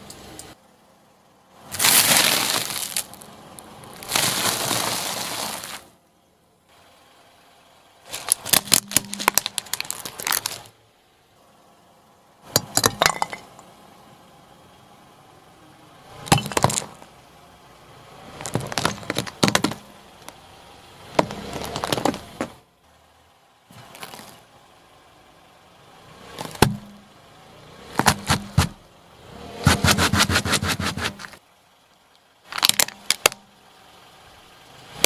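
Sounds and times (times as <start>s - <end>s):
tyre crushing brittle objects: 1.7s - 3.3s, 3.9s - 5.9s, 8.1s - 10.7s, 16.3s - 17.0s, 18.4s - 20.4s, 21.2s - 22.5s, 23.8s - 24.4s, 26.3s - 26.9s, 27.9s - 28.8s, 32.5s - 33.4s.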